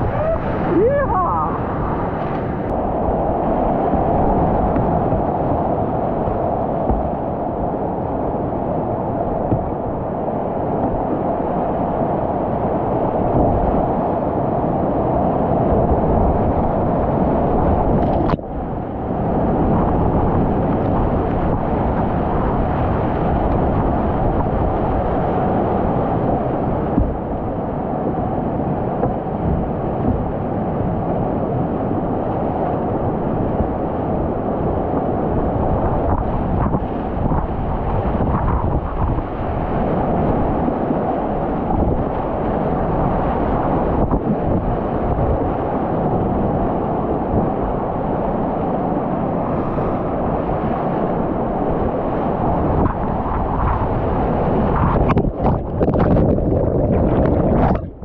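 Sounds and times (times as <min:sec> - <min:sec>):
whitewater rapids rushing: 0:00.0 - 0:13.0.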